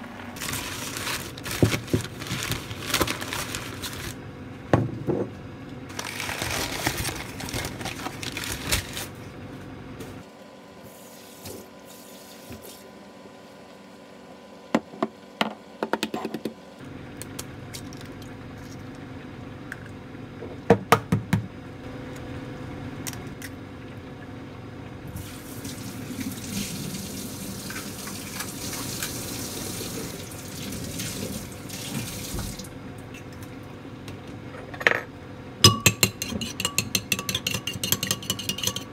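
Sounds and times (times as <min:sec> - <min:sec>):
kitchen tap running: 0:25.2 - 0:32.7.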